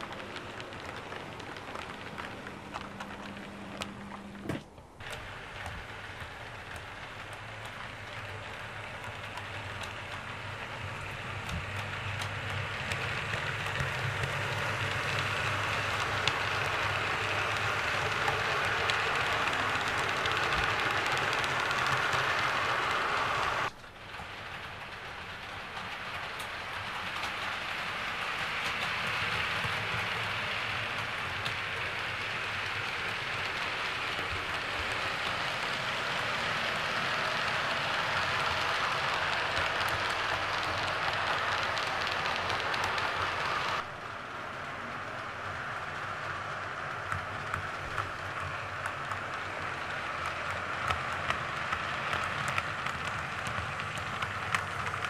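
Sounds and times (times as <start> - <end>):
model train wheels clicking on rails: 0.0 - 55.0.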